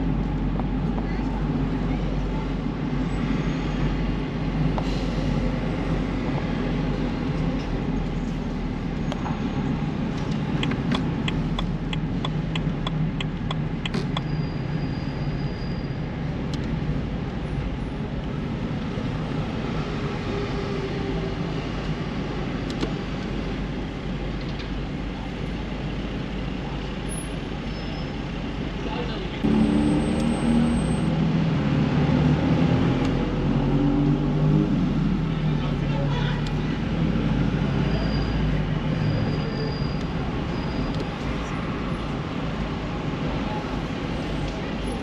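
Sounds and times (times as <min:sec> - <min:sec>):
car engine and road noise: 0:00.0 - 0:45.0
even ticks: 0:10.3 - 0:14.3.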